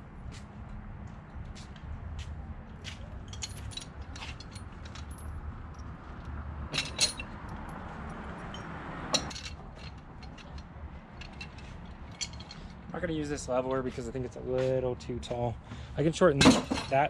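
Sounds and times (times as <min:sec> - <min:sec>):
metal chain clanking: 0:03.2 - 0:12.9, 0:16.4 - 0:17.0.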